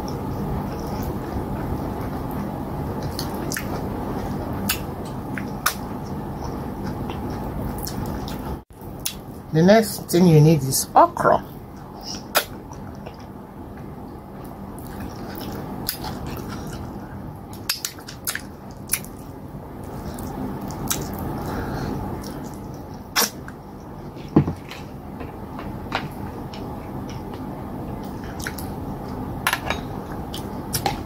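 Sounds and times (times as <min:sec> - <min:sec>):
chewing: 0:00.0 - 0:09.2, 0:11.8 - 0:24.9.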